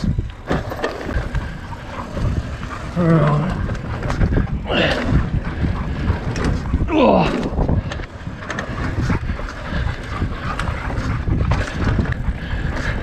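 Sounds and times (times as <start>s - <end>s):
bike clicks and rattles: 0.0s - 13.0s
tyres rumbling on dirt: 0.0s - 13.0s
wind buffeting microphone: 0.0s - 13.0s.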